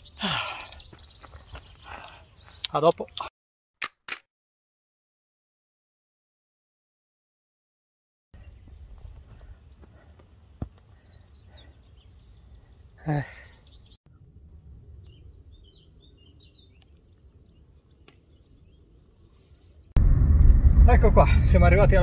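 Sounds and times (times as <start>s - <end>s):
birds whistling and chirping: 0.0s - 3.2s, 8.4s - 14.0s, 15.1s - 19.9s
sharp click: 3.8s - 4.3s
low outdoor rumble: 20.0s - 22.0s.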